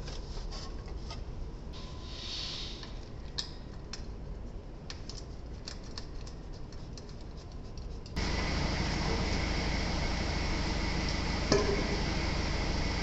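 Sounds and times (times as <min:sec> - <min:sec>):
loud steady background noise: 0:08.2 - 0:13.0.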